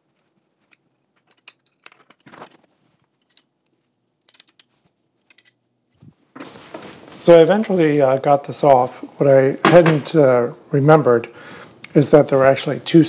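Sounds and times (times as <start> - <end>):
allen key clicking on screws: 4.2 - 5.6.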